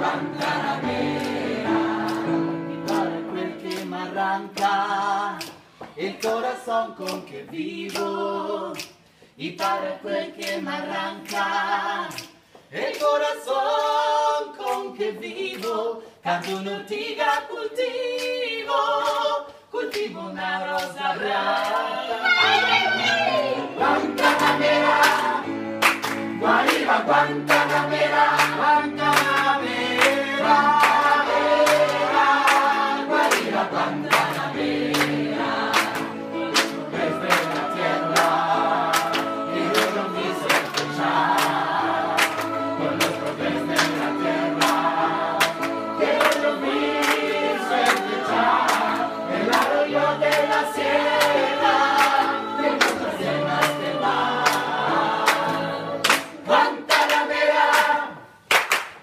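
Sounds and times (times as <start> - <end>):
mixed choir singing: 0.0 - 8.8, 9.4 - 58.5
hands clapping in time: 0.4 - 4.0, 5.4 - 9.8, 10.4 - 13.3, 24.1 - 54.7, 55.3 - 59.0.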